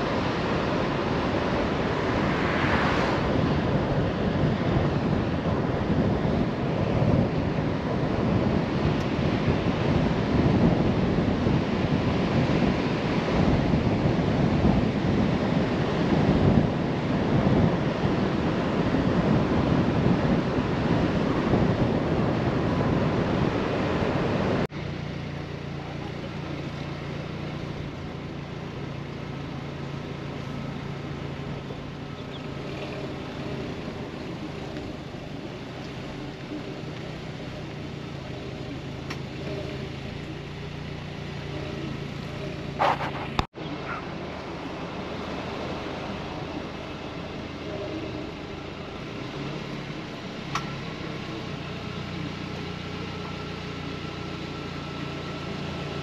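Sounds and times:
surf rushing: 0.0s - 24.7s
wind on microphone: 0.0s - 24.8s, 26.0s - 56.0s
low engine hum: 0.0s - 56.0s.

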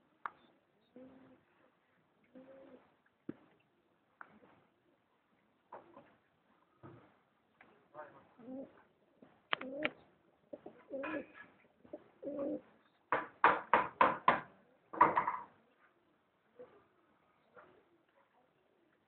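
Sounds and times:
pigeons cooing: 0.8s - 1.5s, 2.3s - 2.9s, 8.4s - 8.9s, 9.5s - 12.8s.

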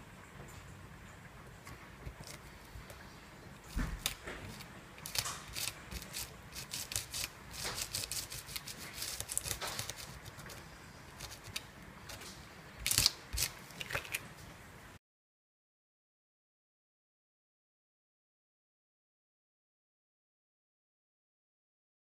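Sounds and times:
plastic stencil crinkling: 3.6s - 14.3s.

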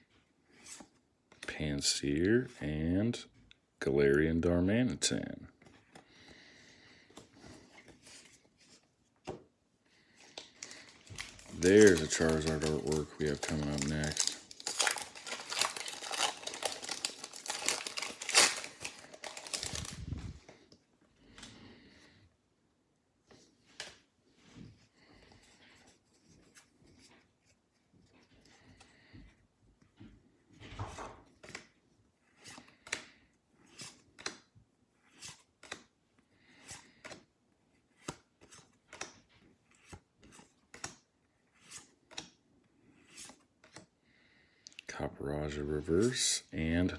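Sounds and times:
cards swishing and snapping: 10.3s - 20.3s, 32.3s - 35.9s, 36.6s - 43.9s
foil wrapper crinkling: 10.6s - 20.1s.

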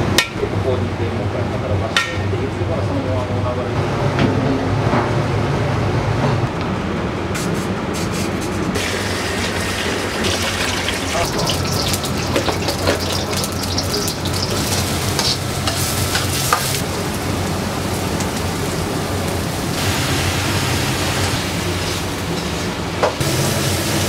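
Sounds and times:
vegetables sizzling in oil: 8.8s - 24.0s.

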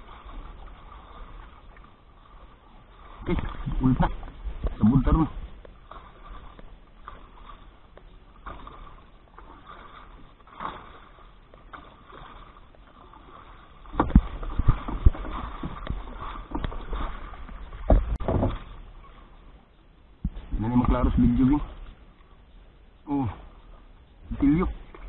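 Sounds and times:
water sloshing against boat hull: 0.0s - 25.0s
knocks and bumps on boat: 3.0s - 18.9s.

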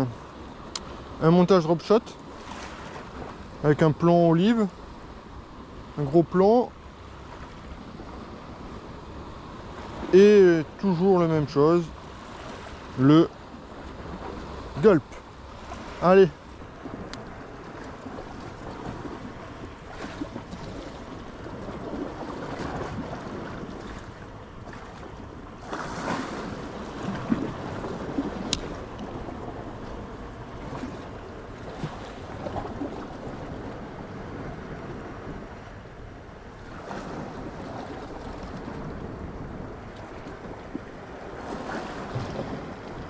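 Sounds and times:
waves breaking on rocky shore: 0.0s - 5.3s, 5.9s - 35.8s, 36.6s - 43.0s
wind buffeting microphone: 0.0s - 43.0s.

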